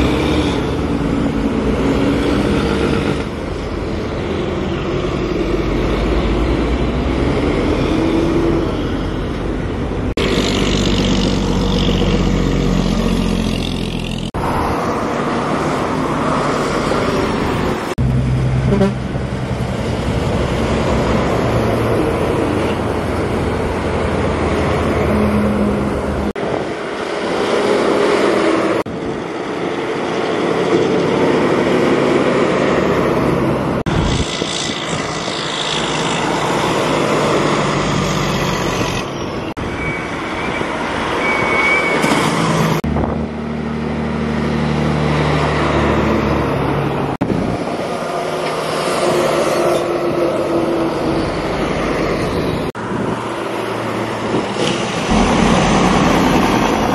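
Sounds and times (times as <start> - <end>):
heavy truck engines passing: 0.0 - 56.9.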